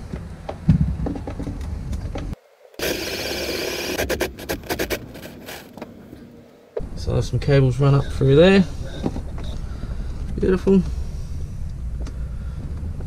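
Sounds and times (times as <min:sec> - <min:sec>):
cordless drill boring through wood: 0:02.8 - 0:04.8.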